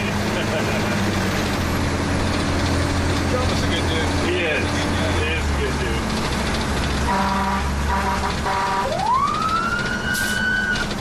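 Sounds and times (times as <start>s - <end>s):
truck engine running: 0.0s - 11.0s
fire engine horn blasts: 7.0s - 9.2s
siren winding up: 8.8s - 10.9s.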